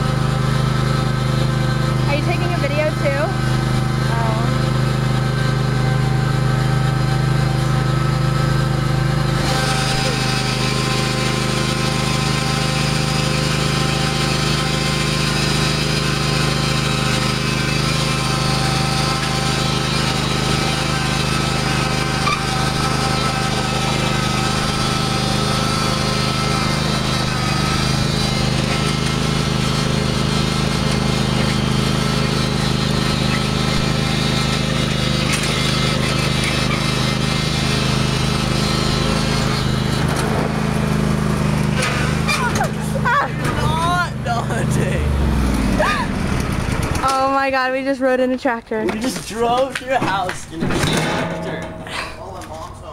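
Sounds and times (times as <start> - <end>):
riding lawn mower engine running: 0.0 - 52.9.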